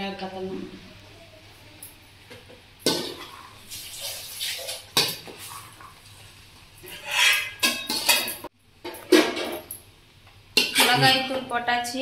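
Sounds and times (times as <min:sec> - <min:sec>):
metal spoon scraping metal bowl: 0:06.8 - 0:08.4, 0:10.6 - 0:11.2.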